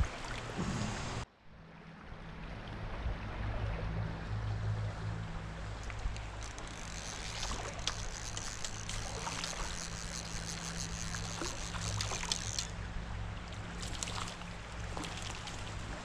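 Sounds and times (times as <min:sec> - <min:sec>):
small splashes: 0:00.0 - 0:01.2, 0:05.7 - 0:16.0
stream water flowing: 0:00.0 - 0:16.0.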